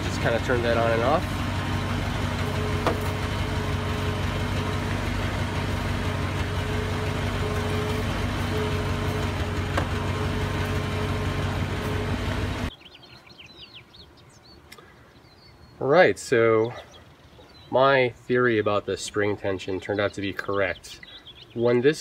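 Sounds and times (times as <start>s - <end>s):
van engine idling: 0.0s - 12.8s.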